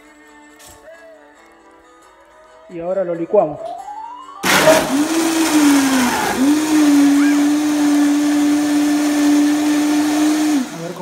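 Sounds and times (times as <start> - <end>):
blender motor running: 4.4 - 11.0.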